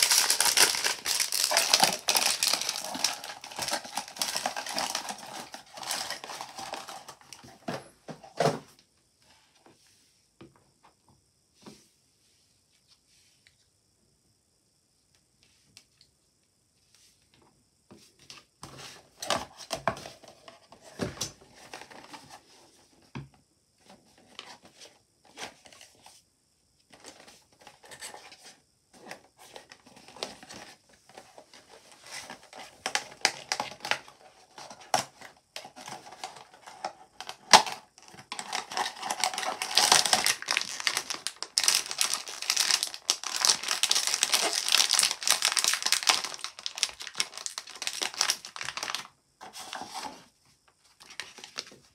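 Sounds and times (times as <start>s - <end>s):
plastic bag crinkling: 0.0s - 7.5s, 37.5s - 49.1s.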